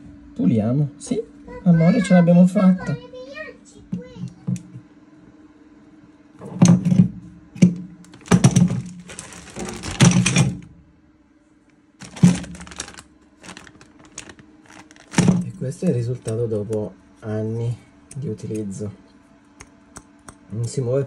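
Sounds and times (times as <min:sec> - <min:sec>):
steady low hum: 0:00.0 - 0:21.0
clicking and clattering parts: 0:08.1 - 0:10.7.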